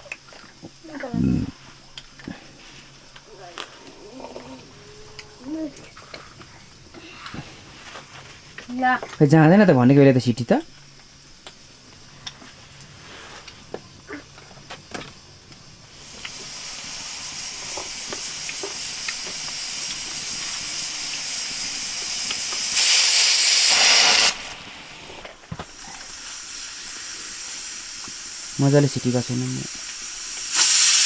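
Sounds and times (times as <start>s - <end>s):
pressure cooker steam hiss: 15.7s - 31.0s
pressure cooker whistle: 21.0s - 24.4s, 30.5s - 31.0s.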